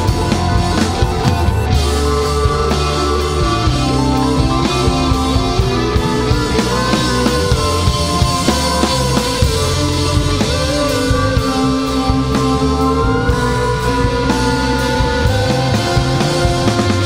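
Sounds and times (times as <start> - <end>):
rock band playing live: 0.0 - 17.0.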